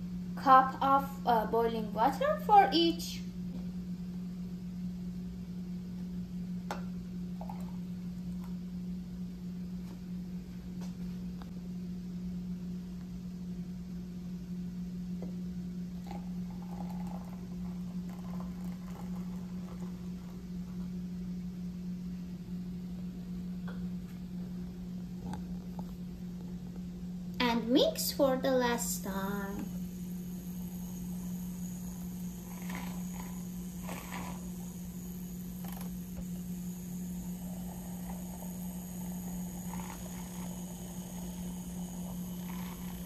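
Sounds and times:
steady low hum: 0.0 - 43.0
water trickling into mug: 7.4 - 7.8, 16.0 - 20.4.

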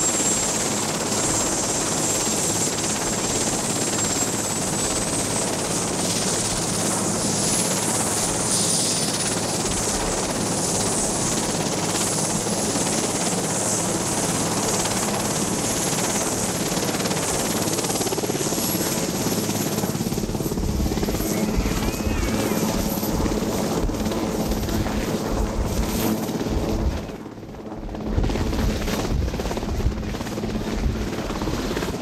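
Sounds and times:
helicopter rotor drone: 0.0 - 32.0
high turbine whine: 19.4 - 31.9.

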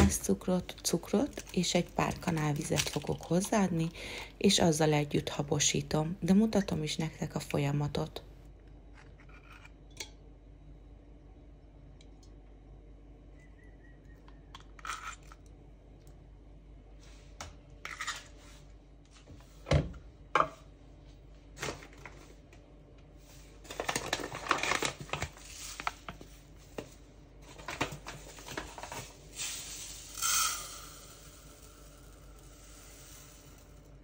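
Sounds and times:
paper bag rustling and tearing: 23.6 - 26.4.

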